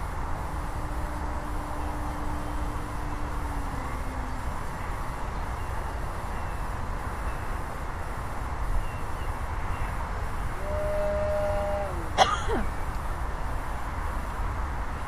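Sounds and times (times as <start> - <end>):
distant model airplane motor whine: 0.0 - 5.7
low pitched call: 0.0 - 6.1, 10.6 - 12.7
wind rumble on microphone: 0.0 - 15.0.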